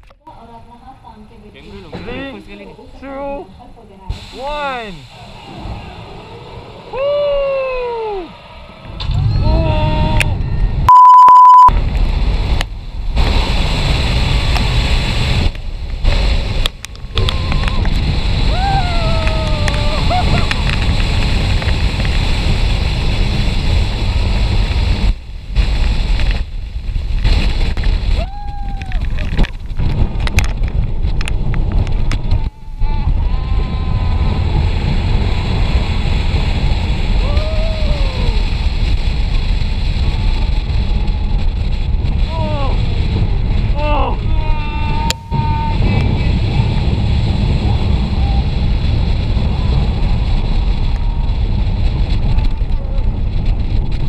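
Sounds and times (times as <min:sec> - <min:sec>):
heavy wind on microphone: 0:00.0 - 0:54.0
loud electronic beep: 0:10.9 - 0:11.7.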